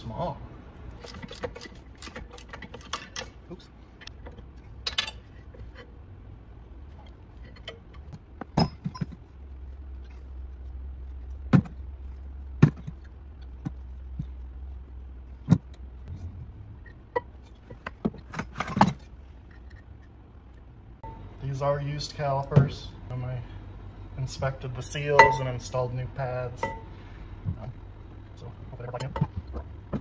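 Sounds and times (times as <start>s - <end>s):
low steady hum: 0.0s - 30.0s
metal clinks of wrench and bolts: 4.8s - 5.3s.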